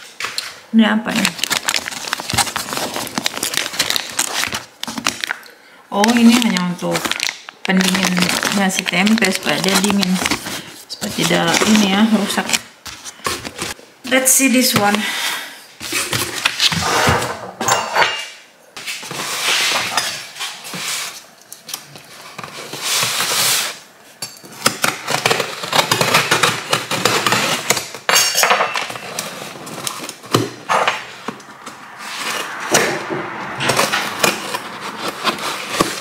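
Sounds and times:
cardboard rustling and scraping: 1.2 - 5.3, 6.1 - 13.8, 18.8 - 23.9, 28.9 - 36.0
packing tape being cut: 1.2 - 5.3, 24.6 - 28.0, 33.7 - 36.0.

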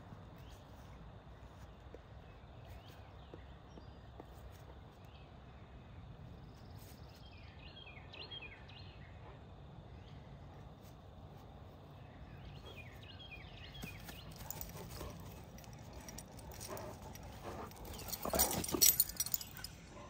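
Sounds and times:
bird chirping: 12.0 - 20.0.

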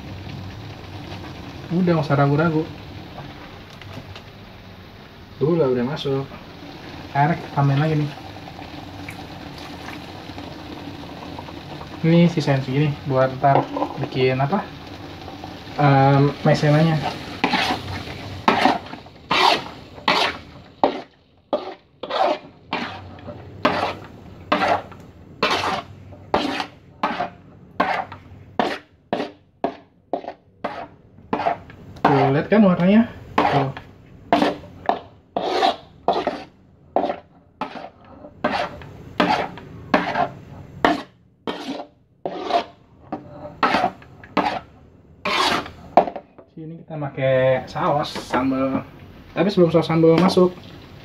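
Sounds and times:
spatula scraping a wok: 12.4 - 46.4.

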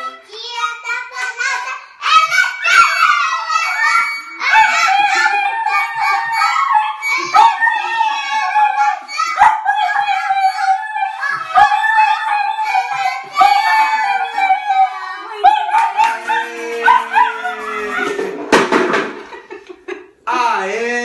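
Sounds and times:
harmonica notes: 2.7 - 17.7
small dog howling: 4.0 - 18.3.

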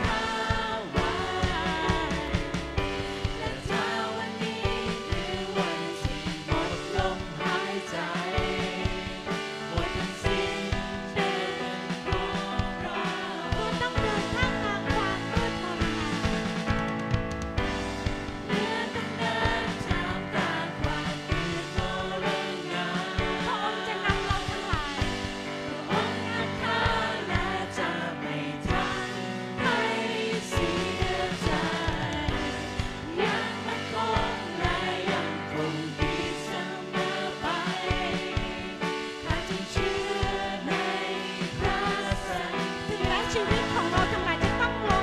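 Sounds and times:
woman singing: 0.0 - 2.7, 9.7 - 16.2, 18.6 - 27.9, 41.6 - 45.0
band with steady beat: 0.0 - 45.0
man singing along: 9.7 - 10.8.

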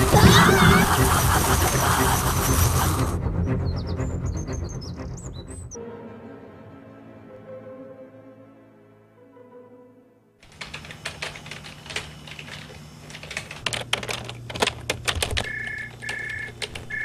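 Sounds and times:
rapid typing clicks: 10.4 - 17.0
electronic telephone ringing: 15.3 - 17.0.

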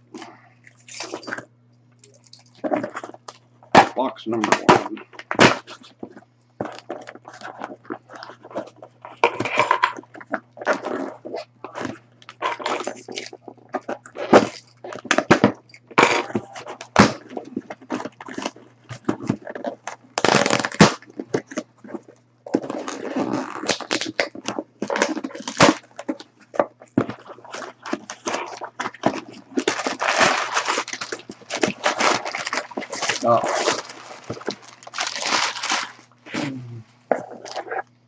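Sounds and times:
tape and cardboard ripping: 3.8 - 36.5
packing paper rustling: 16.0 - 36.4.

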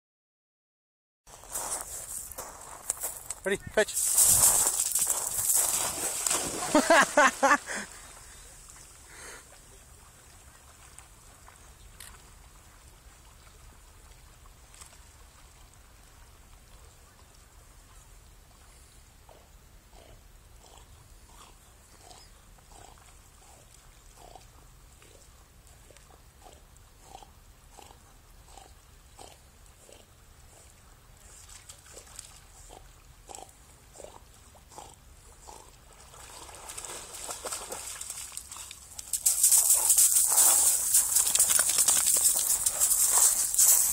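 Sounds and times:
crunching on shingle: 4.0 - 7.3, 38.9 - 43.9.

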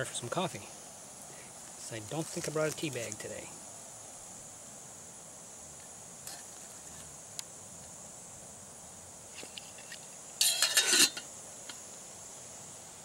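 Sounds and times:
high-pitched stove hiss: 0.0 - 13.0
metal on metal clattering scrape: 9.4 - 11.3.

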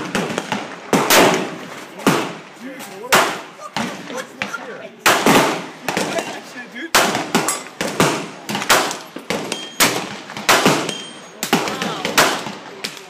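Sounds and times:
gunshots with echo: 0.0 - 4.1, 5.0 - 13.0.

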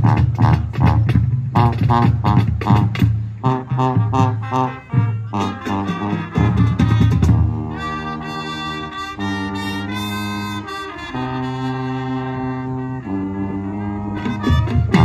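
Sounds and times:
marching band drums: 0.0 - 10.7, 14.2 - 15.0
brass sustained chords: 0.0 - 15.0.

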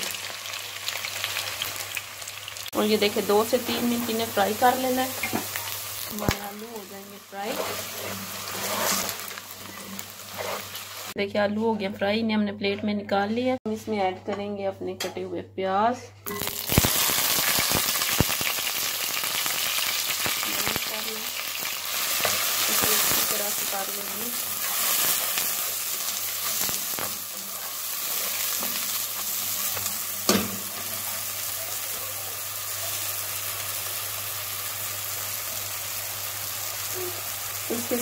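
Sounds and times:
onions sizzling in hot oil: 0.0 - 11.2, 16.3 - 38.0
spoon stirring and scraping pan: 7.3 - 11.1, 22.0 - 31.4.

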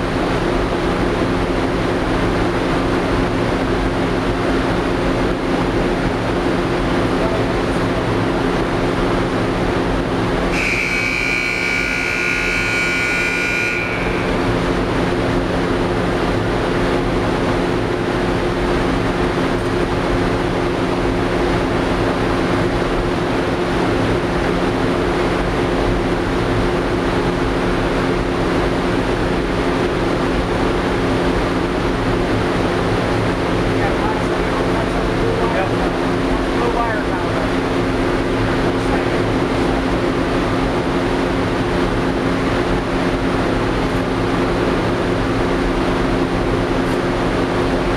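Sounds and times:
furnace roaring: 0.0 - 47.9
high-pitched whine: 10.5 - 15.5.

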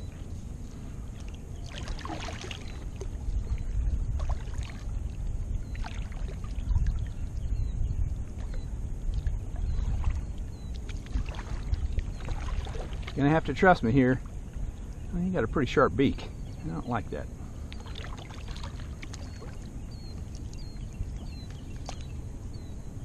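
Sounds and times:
steady low rumble: 0.0 - 23.0
kayak paddle splashing water: 1.2 - 7.2, 8.4 - 13.4, 17.7 - 20.8.

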